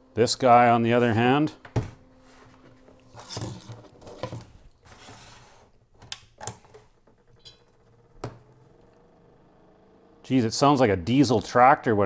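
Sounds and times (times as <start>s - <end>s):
extractor fan humming: 0.0s - 12.0s.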